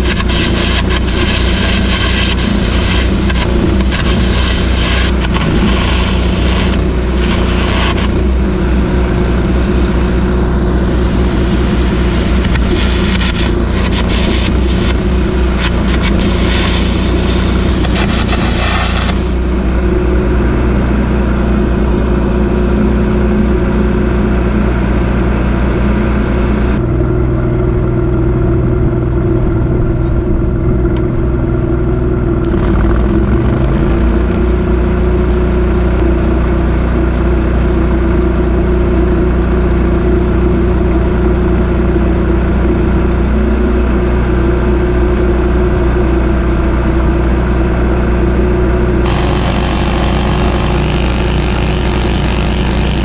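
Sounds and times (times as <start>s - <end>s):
harsh hiss: 0.0s - 19.4s, 49.0s - 53.0s
welder engine running: 0.0s - 53.0s.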